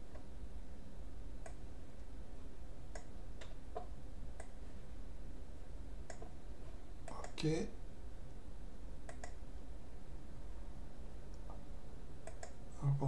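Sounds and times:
low background hum: 0.0s - 13.0s
computer mouse buttons clicking: 2.9s - 4.6s, 6.0s - 6.3s, 9.0s - 9.4s, 12.2s - 12.6s.

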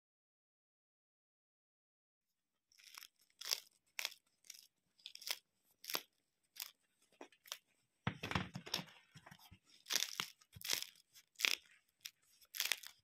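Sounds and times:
bread crust crackling: 2.7s - 7.7s, 8.6s - 13.0s.

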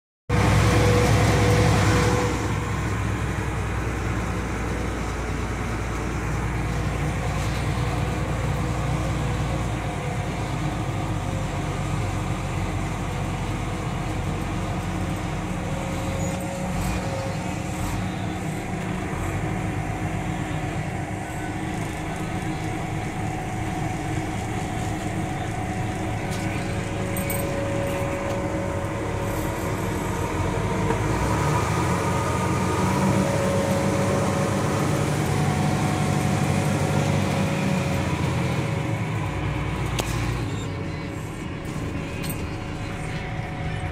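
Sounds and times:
low truck engine drone: 0.3s - 43.9s
faint whine: 15.1s - 31.4s.

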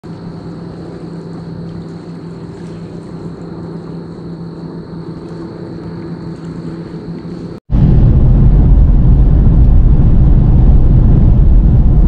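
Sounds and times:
vehicle driving on highway: 7.2s - 12.0s.

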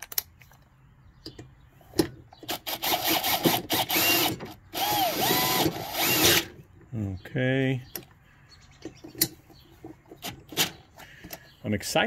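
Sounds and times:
cordless drill motor whine: 2.5s - 6.5s.

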